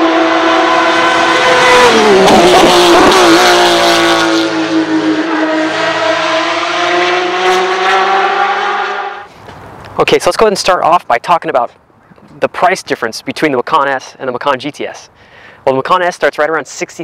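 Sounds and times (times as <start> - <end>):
race car engine at high revs: 0.0 - 9.3.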